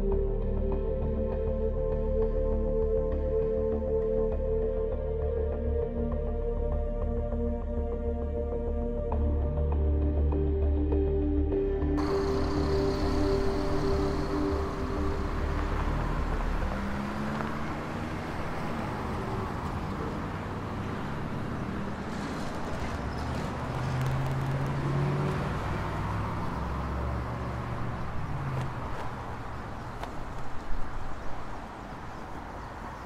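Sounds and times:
vehicles passing: 0:11.5 - 0:33.0
car engines running: 0:12.0 - 0:33.0.

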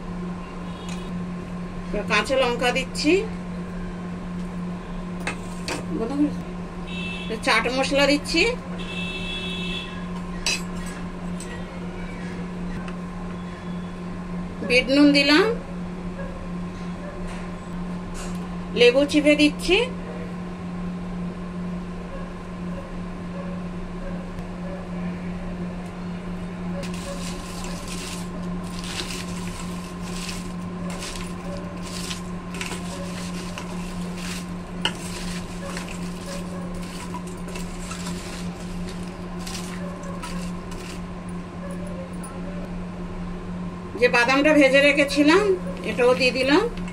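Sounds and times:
steady low hum: 0:00.0 - 0:46.9
crisp papad crackling and rustling: 0:26.8 - 0:41.0.

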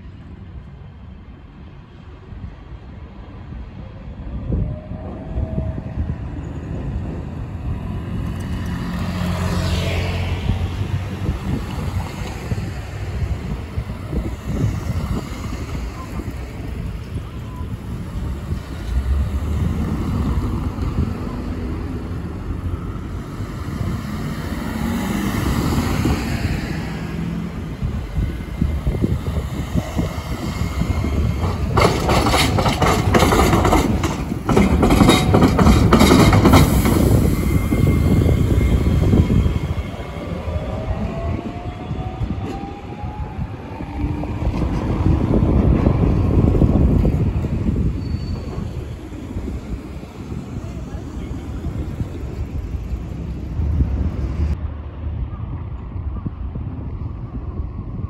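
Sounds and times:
tram wheels rumbling on rails: 0:00.0 - 0:58.0
cars driving past: 0:07.1 - 0:32.0.

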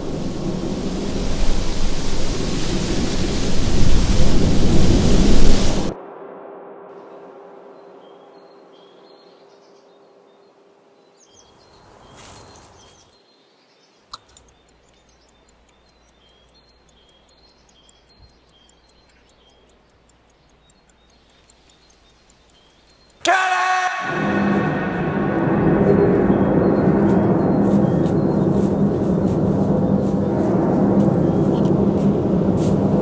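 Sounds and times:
hum: 0:00.0 - 0:11.2, 0:14.2 - 0:33.0
faint bird chirps: 0:07.6 - 0:23.8, 0:24.5 - 0:30.3
pocket watch ticking: 0:14.1 - 0:24.9
sharp click: 0:14.1 - 0:24.9.

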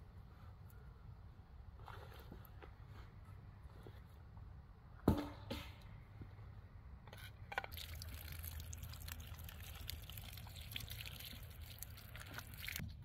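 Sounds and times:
water dripping: 0:07.6 - 0:13.0
water splashing on campfire ashes: 0:07.6 - 0:13.0.

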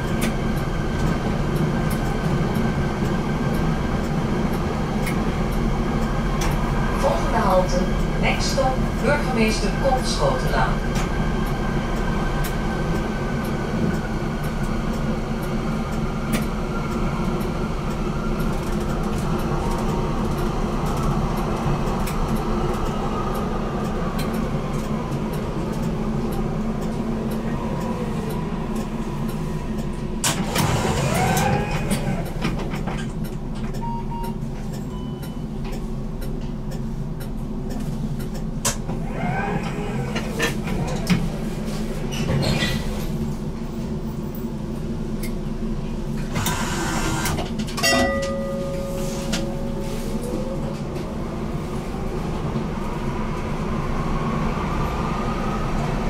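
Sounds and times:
tram drive whine: 0:00.0 - 0:56.0
short beeps: 0:33.8 - 0:35.4.

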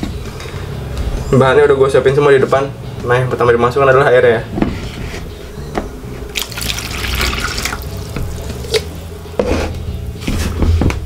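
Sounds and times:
water pouring into metal bowl: 0:06.3 - 0:09.0.

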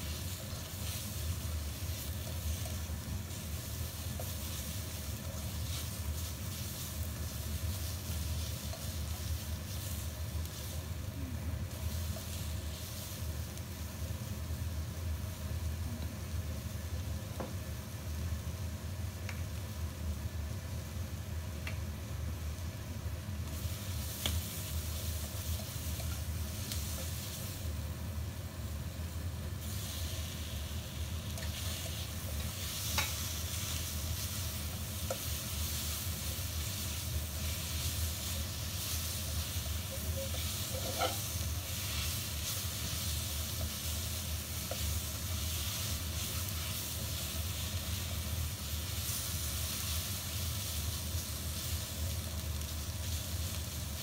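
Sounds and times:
food sizzling in a wok: 0:00.0 - 0:54.0
steady low hum: 0:00.0 - 0:54.0
spatula scraping wok: 0:29.6 - 0:51.8.

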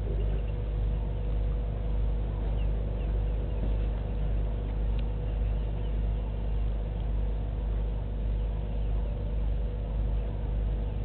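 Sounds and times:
birds chirping: 0:00.0 - 0:01.5, 0:02.4 - 0:04.3, 0:05.0 - 0:07.1
low rumble and hum: 0:00.0 - 0:11.0.

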